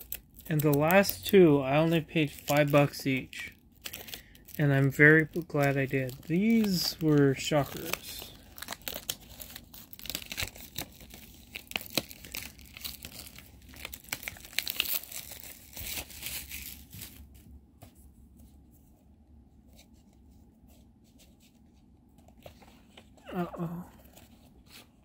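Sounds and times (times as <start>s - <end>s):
plastic packaging crinkling and tearing: 0.0s - 17.4s.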